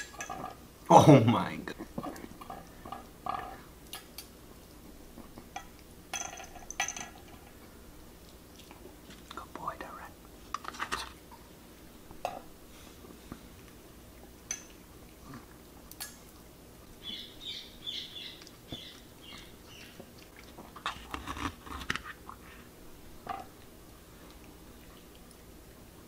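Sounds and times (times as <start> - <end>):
dog chewing food: 18.4 - 22.7.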